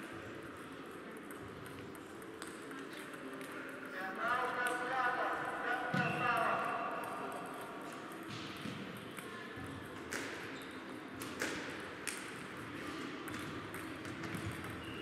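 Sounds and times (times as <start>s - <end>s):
table tennis balls clicking: 0.3s - 3.9s, 7.1s - 15.0s.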